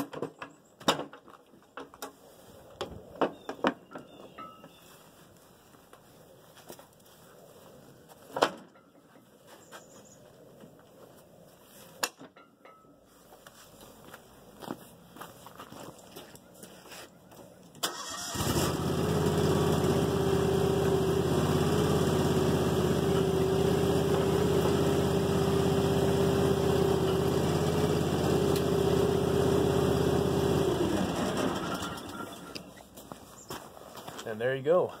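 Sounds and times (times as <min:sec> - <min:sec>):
tractor engine running: 0:17.8 - 0:32.9.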